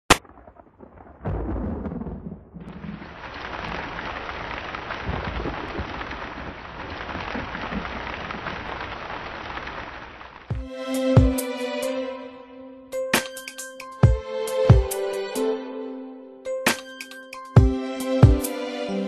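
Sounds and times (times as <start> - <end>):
rain falling: 0.1 - 11.7.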